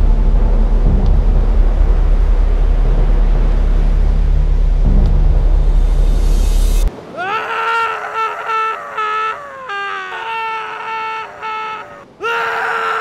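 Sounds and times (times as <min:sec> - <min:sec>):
loud low rumble: 0:00.0 - 0:06.9
man screaming: 0:07.1 - 0:13.0.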